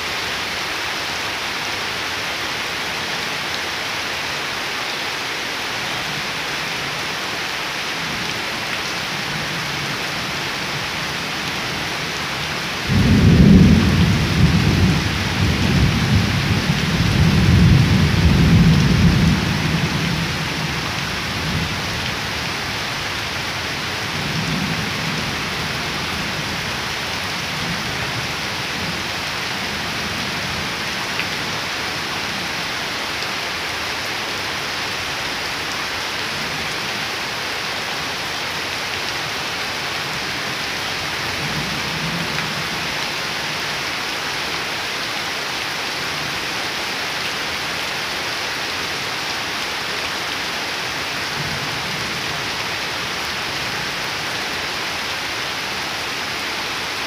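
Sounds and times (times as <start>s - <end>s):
rain falling on water: 0.0s - 57.0s
thunder rumbling: 12.9s - 19.9s.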